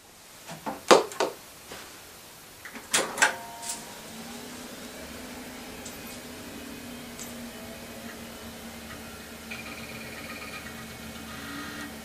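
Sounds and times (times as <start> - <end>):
computer fan and hard drive hum: 0.0 - 12.0
computer switch clunks and clicks: 2.7 - 4.1.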